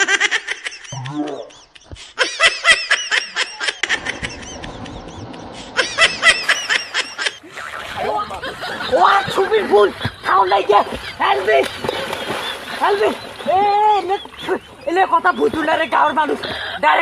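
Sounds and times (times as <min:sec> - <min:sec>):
high-pitched laughter: 0:00.0 - 0:07.4.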